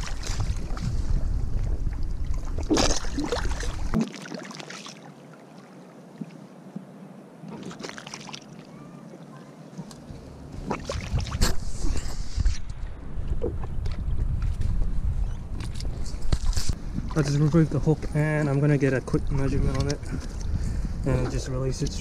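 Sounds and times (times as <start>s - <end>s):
splashing in shallow water: 0.0s - 1.2s, 2.2s - 6.2s, 7.4s - 12.8s
wind rumble on microphone: 0.0s - 4.0s, 9.8s - 22.0s
small waves lapping on sand: 2.8s - 6.3s, 7.4s - 10.0s.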